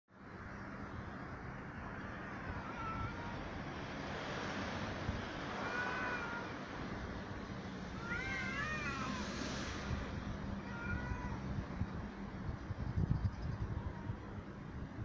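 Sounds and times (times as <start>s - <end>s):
cats yowling in a fight: 2.1s - 3.6s, 5.4s - 6.7s, 7.9s - 9.4s, 10.5s - 11.6s, 13.6s - 14.5s.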